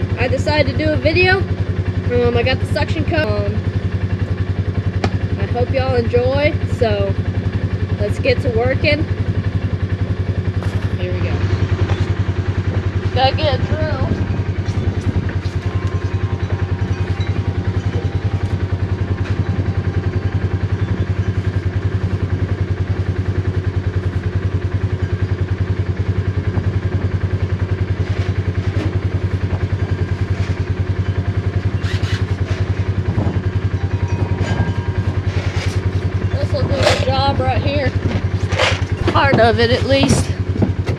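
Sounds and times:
engine running with low throb: 0:00.0 - 0:40.9
light knocks and rattles: 0:32.4 - 0:40.9.

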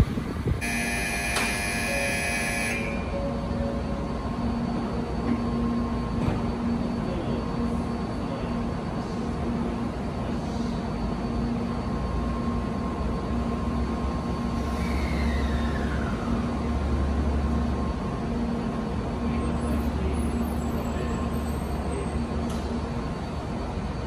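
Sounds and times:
train low rumble: 0:00.0 - 0:24.0.

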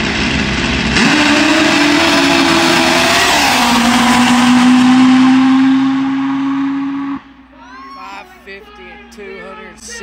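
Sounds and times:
drag motorcycle passing: 0:00.0 - 0:07.3.

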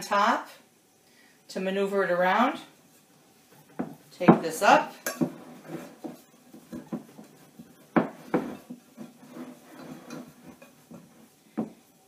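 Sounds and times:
hands kneading sticky dough: 0:05.2 - 0:12.0.

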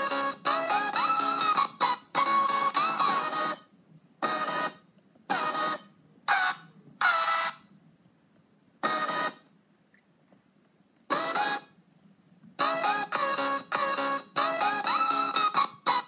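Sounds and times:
electronic music samples: 0:00.0 - 0:07.7, 0:08.8 - 0:09.5, 0:11.1 - 0:11.8, 0:12.6 - 0:16.0.

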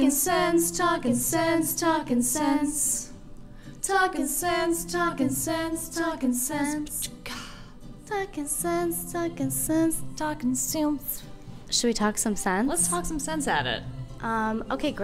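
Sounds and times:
woman singing unaccompanied: 0:03.8 - 0:11.3, 0:12.8 - 0:15.0.

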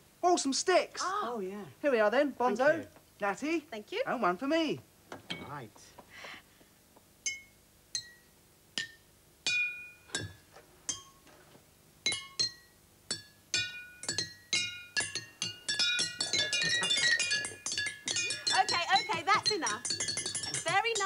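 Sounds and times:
water bottles struck with sticks: 0:08.8 - 0:11.1, 0:12.1 - 0:21.0.

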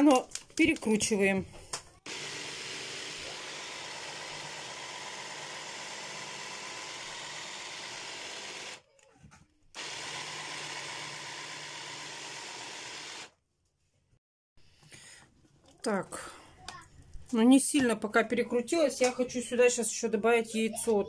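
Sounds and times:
hand blender running: 0:02.0 - 0:08.9, 0:09.8 - 0:13.3.

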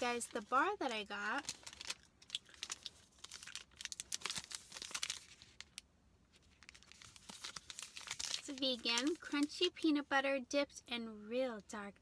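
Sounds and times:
wrapper crinkling: 0:00.0 - 0:05.8, 0:06.4 - 0:09.5.

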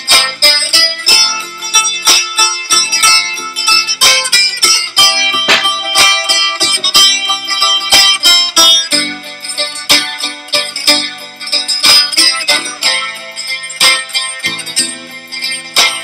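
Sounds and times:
plucked string instrument melody: 0:00.0 - 0:16.0.

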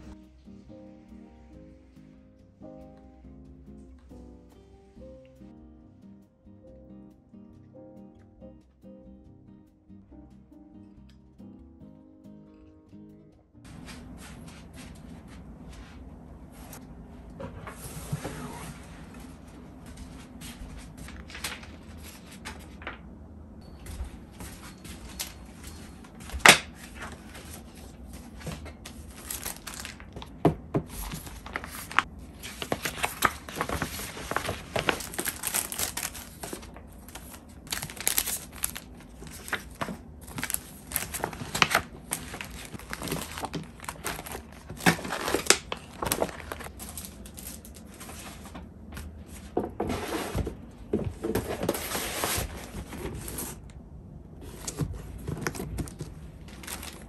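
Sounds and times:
paper rustling and flapping: 0:17.6 - 0:23.1, 0:24.3 - 0:53.7, 0:54.4 - 0:57.0.

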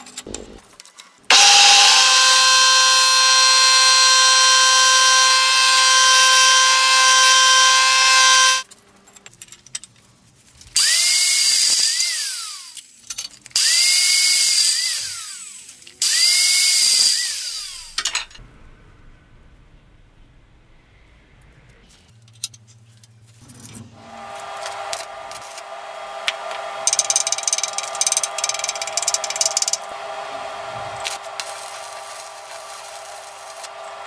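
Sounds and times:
milling cutter whine: 0:01.3 - 0:08.6, 0:24.0 - 0:34.0
power tool cutting steel: 0:01.3 - 0:08.6, 0:10.8 - 0:12.9, 0:13.6 - 0:18.0, 0:24.0 - 0:34.0.

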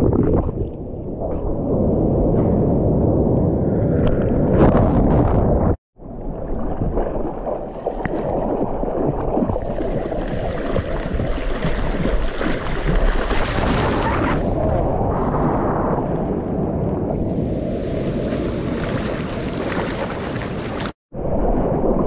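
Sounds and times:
wind noise: 0:00.0 - 0:22.0
water splashing around surfboard: 0:06.3 - 0:14.2, 0:17.7 - 0:22.0.

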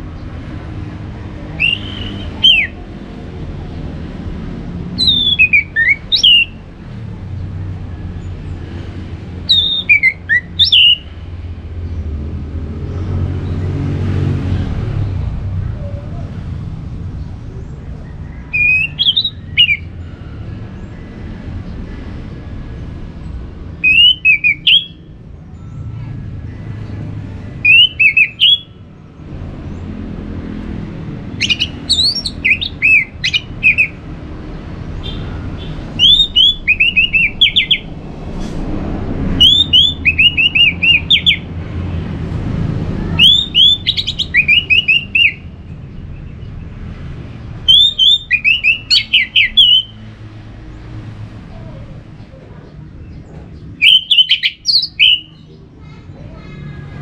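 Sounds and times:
thrush singing: 0:00.6 - 0:06.7, 0:23.7 - 0:45.6.

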